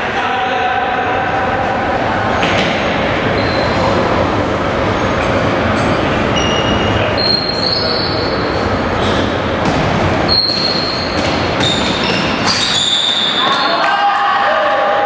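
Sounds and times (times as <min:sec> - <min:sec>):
voices echoing in sports hall: 0:00.0 - 0:15.0
short high squeaks: 0:03.3 - 0:04.0, 0:04.9 - 0:09.4, 0:10.2 - 0:13.8.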